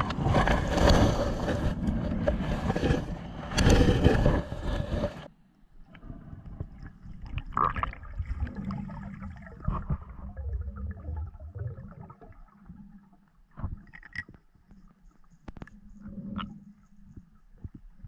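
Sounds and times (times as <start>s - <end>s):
muffled underwater rumble: 0.0s - 18.0s
small clicks and knocks: 13.8s - 14.5s.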